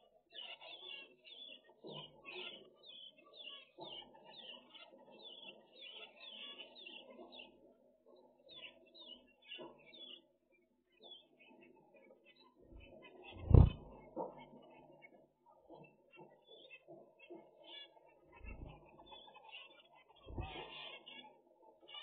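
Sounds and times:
finches calling: 0:12.8 - 0:14.0, 0:16.5 - 0:21.3.

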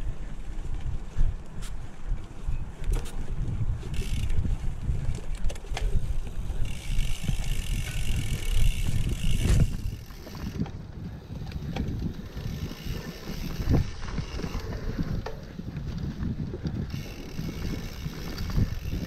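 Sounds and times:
wind on microphone: 0:00.0 - 0:19.0
bike tyres rumbling on dirt: 0:02.9 - 0:19.0
freewheel hub buzzing: 0:03.8 - 0:05.0, 0:05.6 - 0:19.0.

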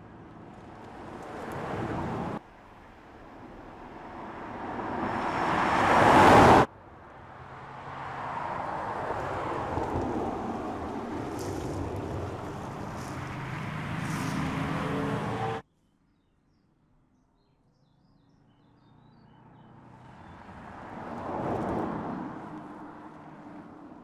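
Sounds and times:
car tyre and wind noise: 0:00.0 - 0:15.6, 0:20.0 - 0:24.0
car passing: 0:00.1 - 0:15.6.

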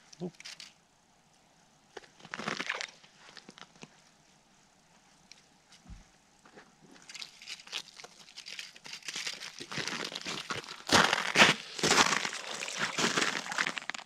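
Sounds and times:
boots crunching on snow: 0:09.7 - 0:13.8.

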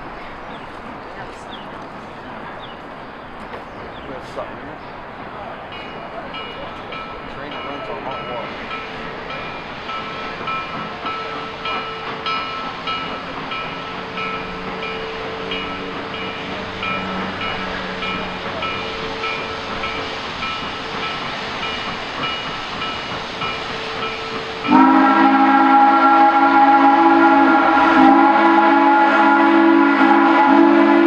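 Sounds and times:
steam hissing: 0:01.6 - 0:31.0
locomotive bell ringing: 0:05.7 - 0:30.6
steam whistle blowing: 0:23.8 - 0:31.0.

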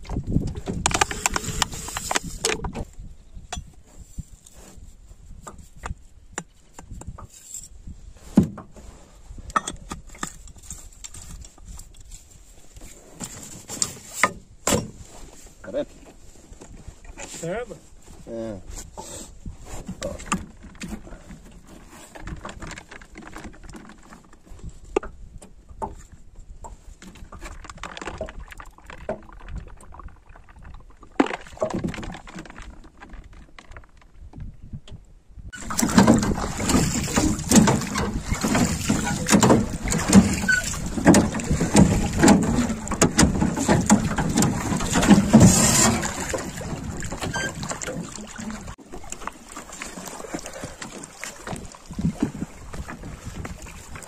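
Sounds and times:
rowing boat splashes: 0:10.0 - 0:34.0, 0:35.5 - 0:54.0.

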